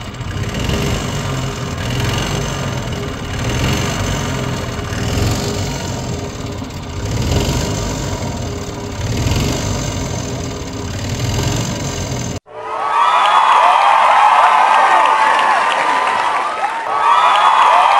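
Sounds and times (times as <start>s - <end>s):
golf cart engine running: 0.0s - 12.4s.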